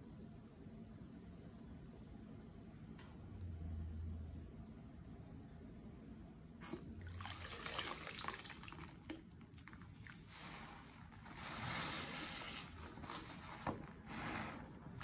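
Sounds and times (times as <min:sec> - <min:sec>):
soap pouring: 0:06.6 - 0:15.0
wet sponge squelching: 0:06.6 - 0:15.0.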